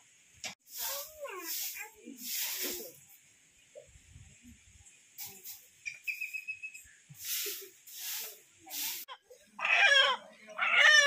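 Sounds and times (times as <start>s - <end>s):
brief thin whistle: 5.9s - 6.8s.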